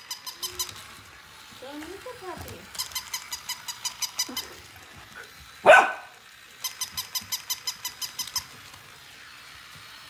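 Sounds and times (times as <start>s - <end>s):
toy dog squeaky pulses: 0.0s - 1.1s, 1.9s - 4.7s, 6.6s - 8.7s
dog bark: 5.6s - 6.1s.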